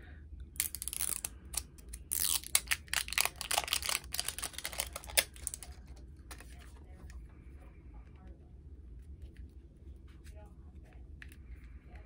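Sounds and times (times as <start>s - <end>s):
packaging crackling and rustling: 0.6s - 6.5s.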